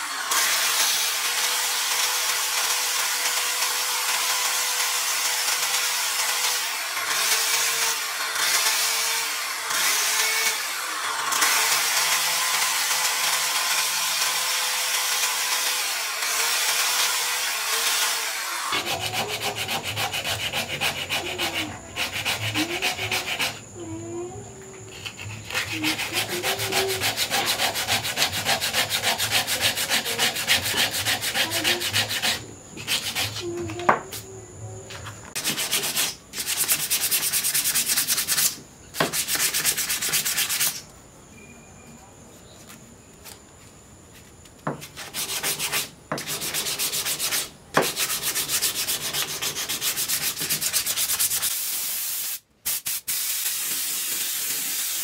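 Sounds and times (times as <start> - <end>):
sandpaper rubbing on wood: 18.7 - 23.7, 24.9 - 34.2, 35.3 - 40.8, 44.7 - 55.0
steady spray hiss: 48.1 - 55.0.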